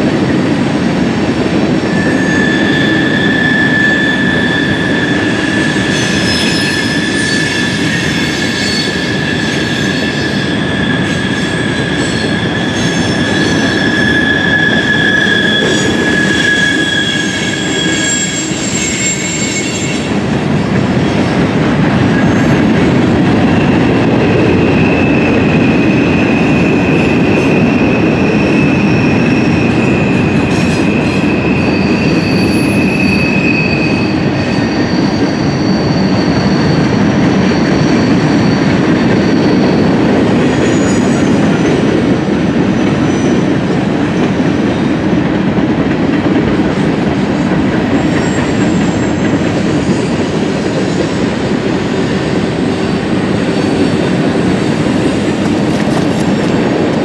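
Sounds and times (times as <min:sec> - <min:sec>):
train wheels rumbling on rails: 0:00.0 - 0:57.0
high wheel squeals: 0:01.9 - 0:20.2, 0:24.6 - 0:41.5.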